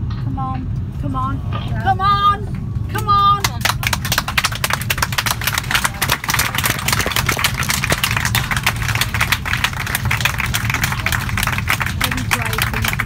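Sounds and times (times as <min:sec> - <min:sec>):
low aircraft hum: 0:00.0 - 0:13.0
crowd clapping: 0:03.4 - 0:13.0.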